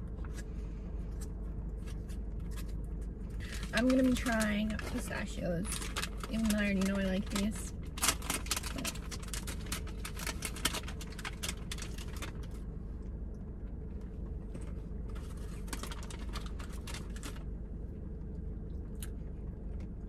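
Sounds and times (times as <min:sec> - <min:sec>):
crinkly plastic bag: 0:01.9 - 0:12.6, 0:15.1 - 0:17.5.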